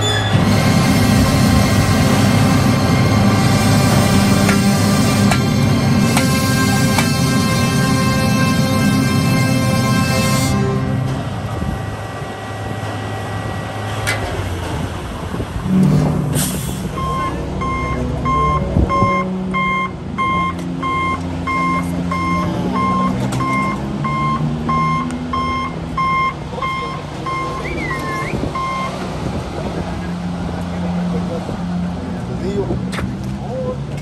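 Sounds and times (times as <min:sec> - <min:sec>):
heavy vehicle engine running: 0:00.0 - 0:34.0
backup alarm beeping: 0:00.2 - 0:11.2, 0:15.6 - 0:29.0.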